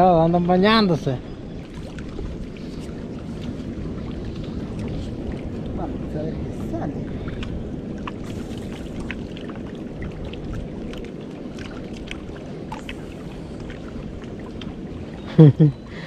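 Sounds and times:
waves lapping against boulders: 0.0 - 16.0
wind rumbling: 0.0 - 16.0.

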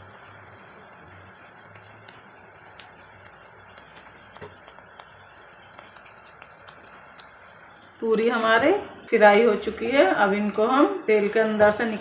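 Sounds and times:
oil popping and crackling: 0.0 - 8.0
food sizzling in hot oil: 0.0 - 9.1.

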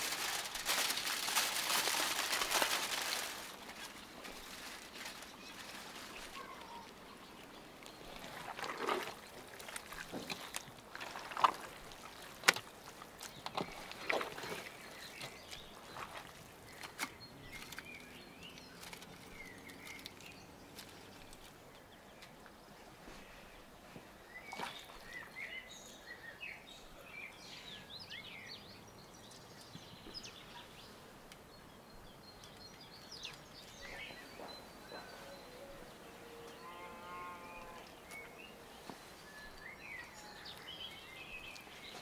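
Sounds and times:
birds chirping faintly: 0.0 - 42.0
hands squishing raw meat in a bowl: 8.1 - 17.9.

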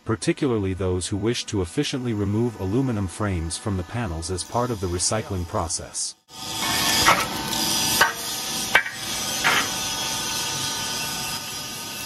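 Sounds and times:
machine running steadily: 6.4 - 11.9
sharp metal knocks and scrapes: 6.5 - 10.2.

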